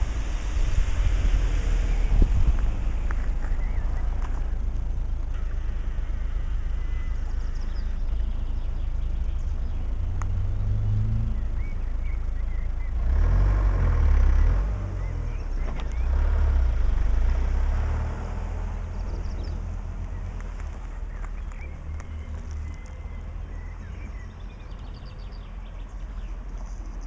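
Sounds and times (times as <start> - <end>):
wind rumble on microphone: 0.0 - 5.3.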